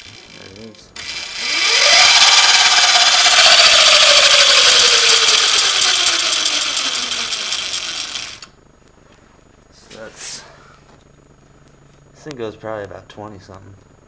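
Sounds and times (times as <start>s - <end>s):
electric motor whine: 0.0s - 8.5s.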